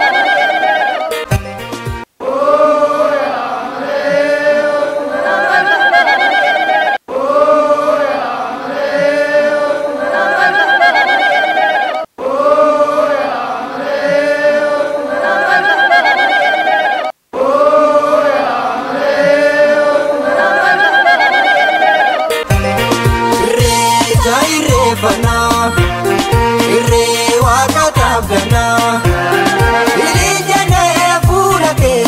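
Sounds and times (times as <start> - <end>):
group chanting and singing: 2.2 - 5.6, 7.1 - 10.4, 12.2 - 15.7, 17.3 - 20.9, 23.4 - 32.0.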